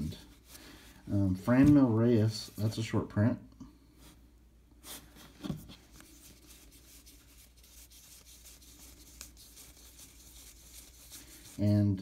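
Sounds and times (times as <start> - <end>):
cards rustling and sliding: 4.8 - 11.6.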